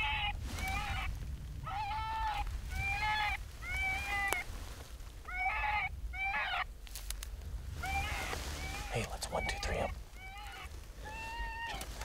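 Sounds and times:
high whining animal cries: 10.2 - 11.9.

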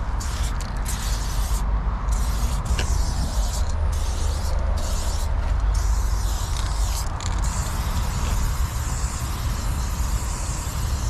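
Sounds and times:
spray paint can hissing: 0.0 - 11.0
steady low rumble: 0.0 - 11.0.

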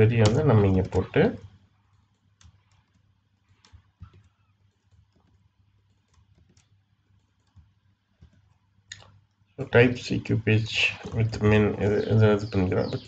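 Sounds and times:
keyboard typing clicks: 0.2 - 9.3.

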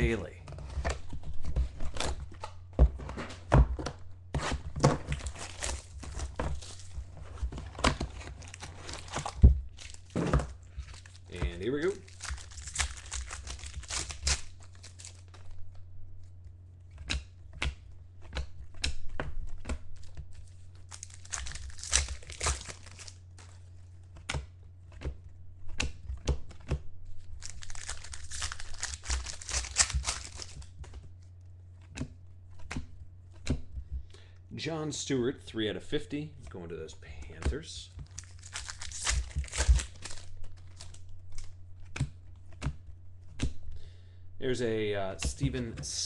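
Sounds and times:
foil wrappers crinkling and tearing: 5.1 - 15.6, 19.9 - 23.6, 27.2 - 30.8, 38.0 - 41.5
cards clicking: 10.8 - 15.4, 27.4 - 31.0, 37.4 - 43.6.

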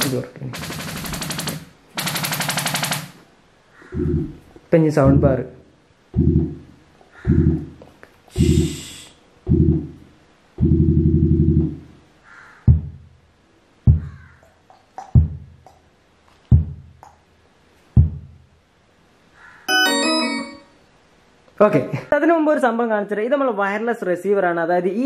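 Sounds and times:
sharp low thumps: 3.9 - 5.4, 6.1 - 7.8, 8.4 - 8.9, 9.5 - 12.0, 12.7 - 13.2, 13.9 - 14.3, 15.2 - 15.6, 16.5 - 17.0, 18.0 - 18.4
low buzzy tone pulses: 4.0 - 4.5, 6.2 - 7.8, 9.5 - 11.9
burst of high hiss: 8.3 - 9.2.

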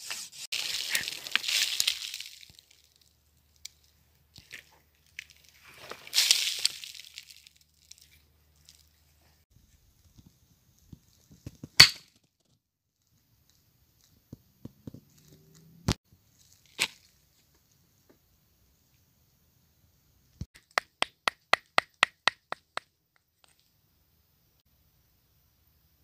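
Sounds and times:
loose rock scraping rustle: 3.7 - 9.2
sharp cracks of stone: 11.6 - 12.3.

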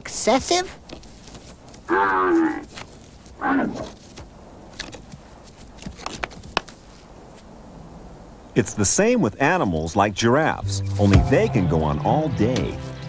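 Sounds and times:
elk bellowing: 1.8 - 2.7, 3.4 - 4.0.

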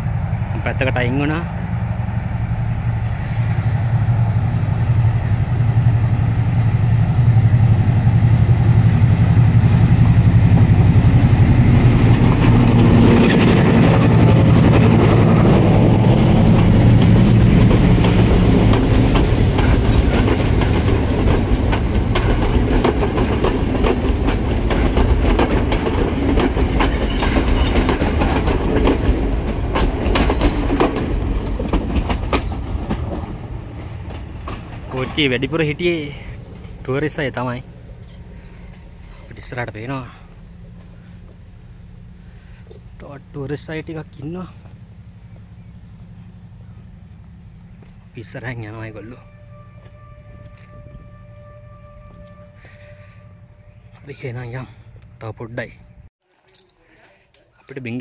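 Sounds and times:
locomotive engine drone: 0.0 - 56.1
wheels clicking over rail joints: 12.1 - 35.4.

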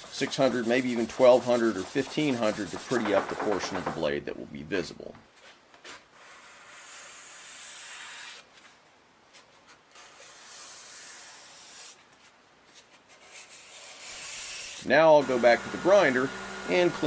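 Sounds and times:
sandpaper rubbing on steel blade: 0.0 - 3.6, 6.2 - 8.4, 10.0 - 12.0, 13.2 - 15.6.

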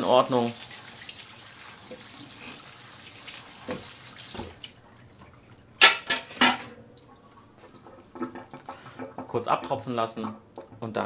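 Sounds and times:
tap water running into strainer: 0.0 - 4.8.

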